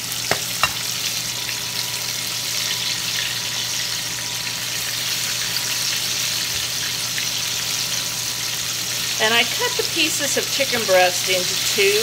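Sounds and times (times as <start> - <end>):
chicken frying in a skillet: 0.0 - 12.0
small pops of frying oil: 0.3 - 0.8.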